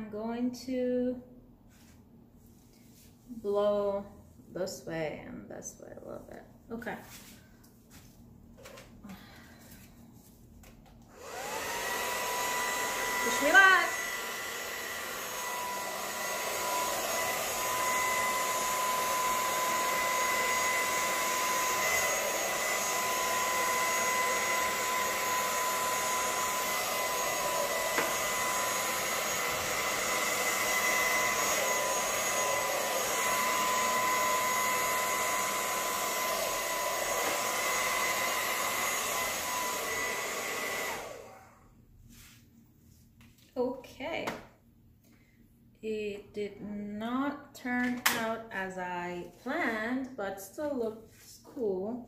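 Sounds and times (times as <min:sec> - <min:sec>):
hair dryer running: 0:10.7 - 0:41.8, 0:47.8 - 0:48.4.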